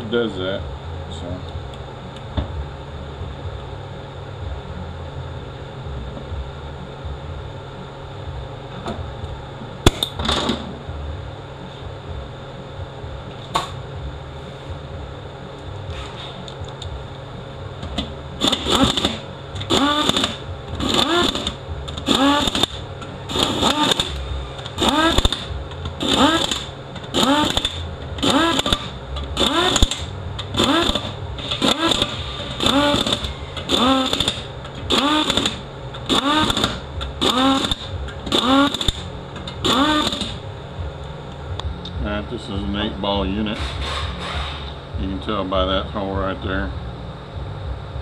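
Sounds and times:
low shop hum: 0:00.0 - 0:48.0
power tool spinning up and down: 0:18.4 - 0:40.4.

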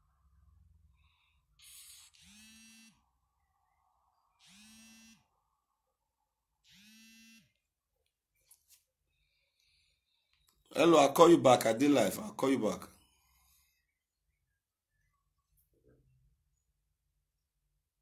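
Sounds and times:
smartphone vibrating buzzes: 0:01.6 - 0:03.1, 0:04.4 - 0:05.4, 0:06.6 - 0:07.6.

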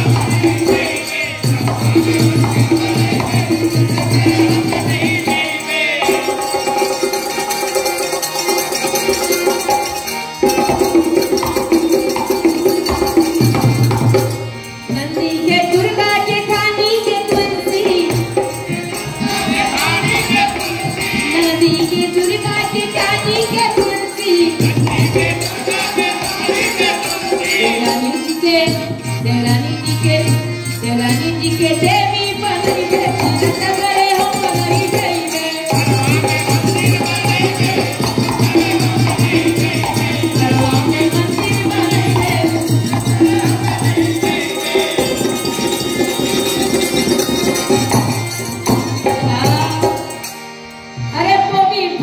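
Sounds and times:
hand drum: 0:00.0 - 0:50.2
harmonium: 0:00.0 - 0:52.0
jingling hand percussion: 0:00.0 - 0:52.0
woman singing: 0:14.9 - 0:18.6, 0:19.2 - 0:45.4, 0:49.0 - 0:50.2, 0:51.1 - 0:52.0.

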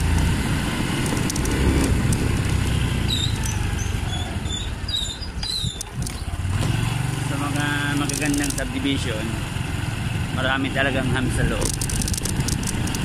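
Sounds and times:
wind rush on microphone: 0:05.3 - 0:06.4.

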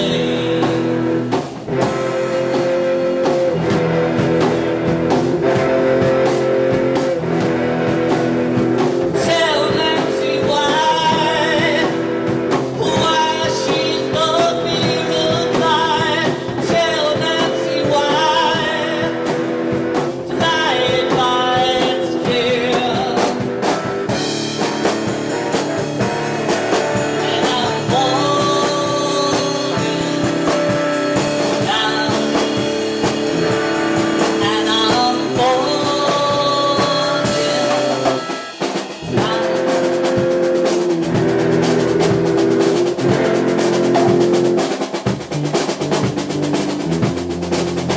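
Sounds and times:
man singing into microphone: 0:00.0 - 0:01.0, 0:09.2 - 0:12.1, 0:12.7 - 0:19.2, 0:20.3 - 0:23.5, 0:27.2 - 0:30.4, 0:31.5 - 0:32.7, 0:34.3 - 0:39.8
rock band playing: 0:00.0 - 0:47.9.

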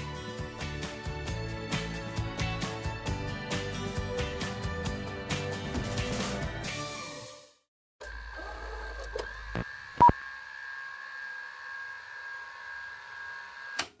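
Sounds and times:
high electronic hum: 0:08.0 - 0:13.7.

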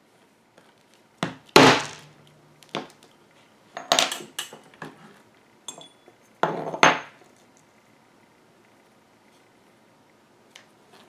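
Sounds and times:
metal tools clinking on workbench: 0:05.7 - 0:07.1.

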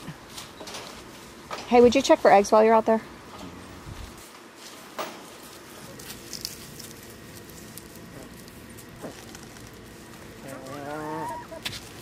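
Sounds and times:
hens pecking and scratching: 0:03.1 - 0:12.0
hen call: 0:10.5 - 0:11.7.

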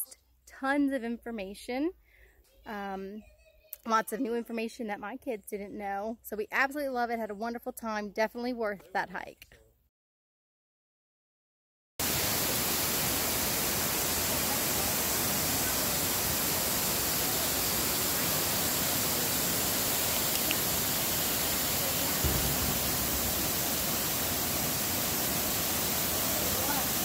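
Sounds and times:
waterfall rushing: 0:12.0 - 0:27.0
low thump: 0:22.2 - 0:25.2.

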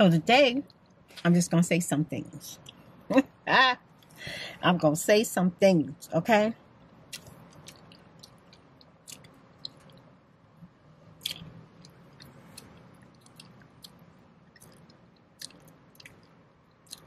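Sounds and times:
gum chewing smacks: 0:07.1 - 0:10.2, 0:11.2 - 0:17.0.

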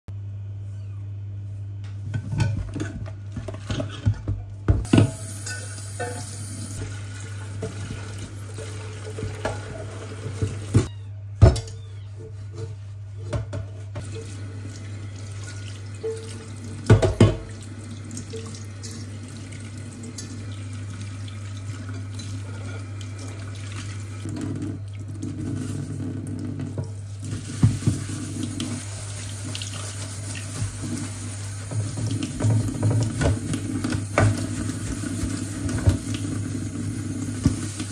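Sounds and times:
tap running: 0:04.7 - 0:11.0, 0:13.3 - 0:17.6, 0:20.1 - 0:37.9
sponge scrubbing a metal pot: 0:12.1 - 0:14.4, 0:21.4 - 0:37.9.

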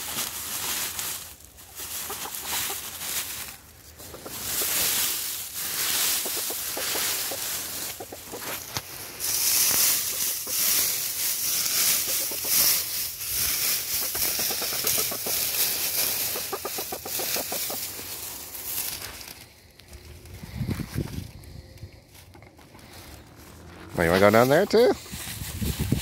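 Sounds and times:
dry leaves rustling and crackling: 0:00.0 - 0:26.0
hen clucking: 0:01.6 - 0:18.9.

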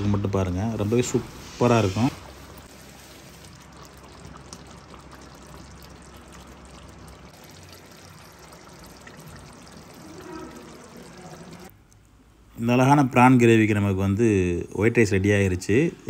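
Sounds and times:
ladle stirring liquid: 0:00.8 - 0:12.0
gravy bubbling in pot: 0:00.9 - 0:11.7.

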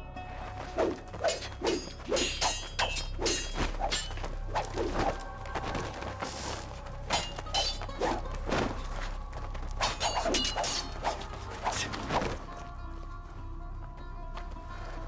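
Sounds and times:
low film score: 0:00.0 - 0:15.0
swords clashing: 0:00.8 - 0:05.2, 0:07.1 - 0:08.2, 0:09.8 - 0:12.2.

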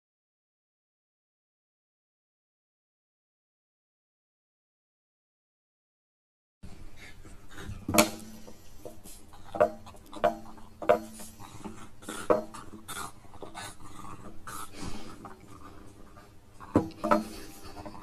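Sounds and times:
dog noises: 0:06.9 - 0:18.0.

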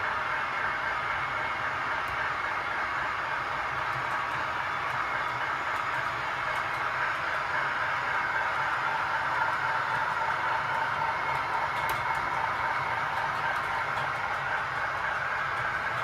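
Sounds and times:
model diesel locomotive running: 0:00.0 - 0:16.0.

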